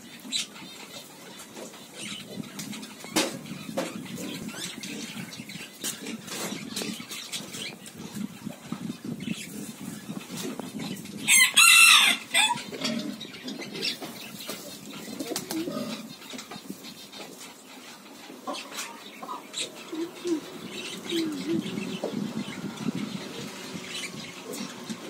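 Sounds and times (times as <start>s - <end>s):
chicken calling: 11.3s - 14.1s.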